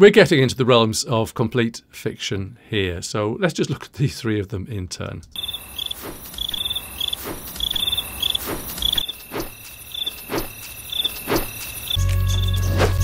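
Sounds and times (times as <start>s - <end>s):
crickets chirping: 5.4s - 12.8s
steady insect trill: 5.4s - 12.8s.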